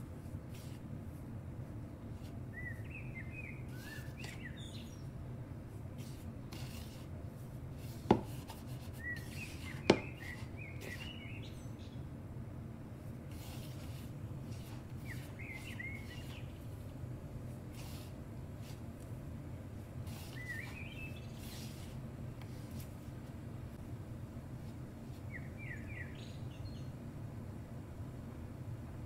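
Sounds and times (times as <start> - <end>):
steady low hum: 0.0 - 29.0
small birds chirping: 2.2 - 6.2, 8.6 - 12.1, 13.4 - 16.8, 20.0 - 22.0, 25.2 - 27.0
fingers rubbing flour in bowl: 6.0 - 11.3, 13.3 - 16.6.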